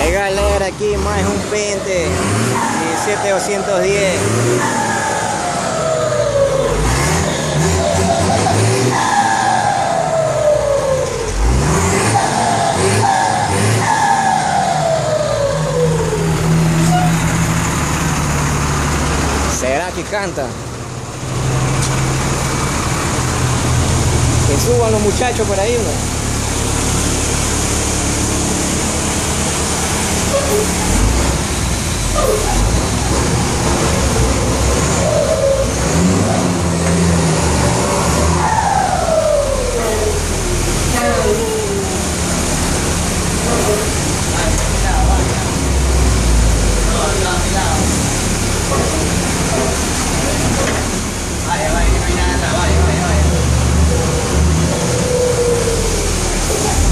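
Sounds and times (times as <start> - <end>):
diesel engine revving and idling: 0.0 - 56.9
turbocharger whistling: 1.9 - 17.4, 34.1 - 36.6, 37.4 - 44.5, 53.9 - 56.9.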